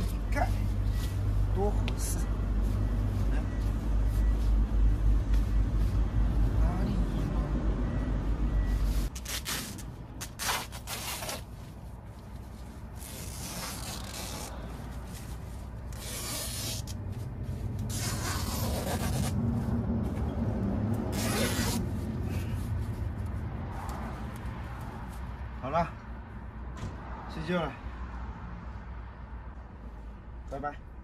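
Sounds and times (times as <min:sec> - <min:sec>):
nylon fabric rustling: 0:10.3 - 0:19.4
tent zipper: 0:13.0 - 0:14.6, 0:15.9 - 0:17.0, 0:17.9 - 0:19.4, 0:21.1 - 0:21.8.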